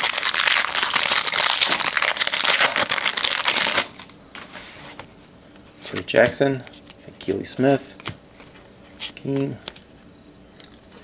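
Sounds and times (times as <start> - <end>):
foil wrapper tearing and crinkling: 0.0 - 4.1.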